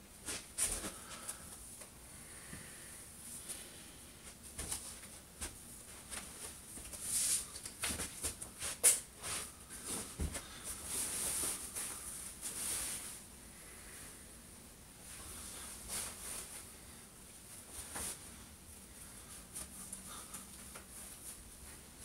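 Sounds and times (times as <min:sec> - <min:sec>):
clothing rustling: 0:04.2 - 0:13.2.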